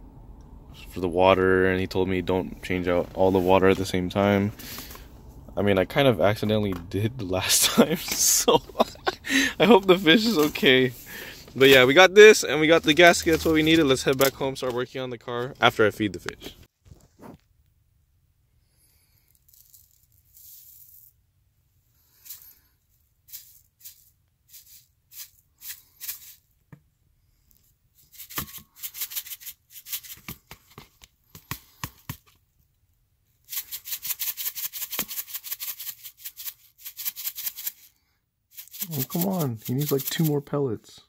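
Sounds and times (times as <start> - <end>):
pellets rattling in container: 8.1 - 14.4, 19.2 - 21.2, 22.1 - 22.6, 23.2 - 26.5, 28.0 - 30.2, 33.4 - 40.5.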